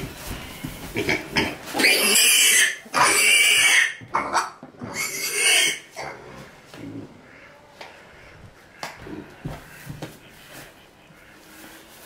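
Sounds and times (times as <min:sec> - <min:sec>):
piglet squealing: 0:01.8 - 0:05.9.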